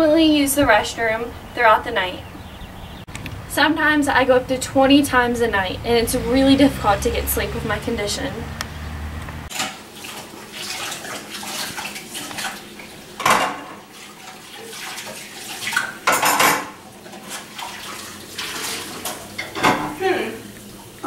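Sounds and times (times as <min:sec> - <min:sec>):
dishes and cutlery clattering: 0:13.2 - 0:13.8, 0:15.7 - 0:17.4, 0:19.0 - 0:20.0.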